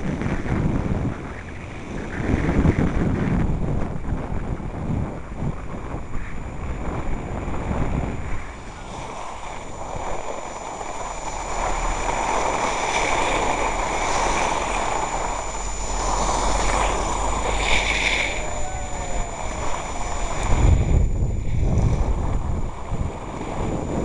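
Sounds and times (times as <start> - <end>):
wind buffeting microphone: 0.0 - 24.0
skis hissing over snow: 8.4 - 20.5.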